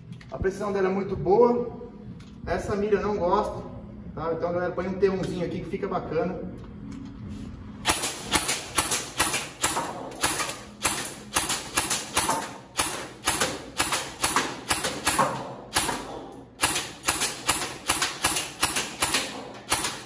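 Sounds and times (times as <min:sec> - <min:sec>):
airsoft rifle firing single shots: 0:07.9 - 0:20.0.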